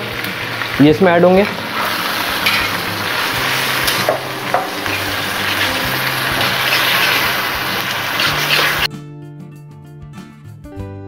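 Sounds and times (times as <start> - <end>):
tomatoes sizzling in hot oil: 0.0 - 8.9
metal spatula scraping a pan: 1.7 - 8.9.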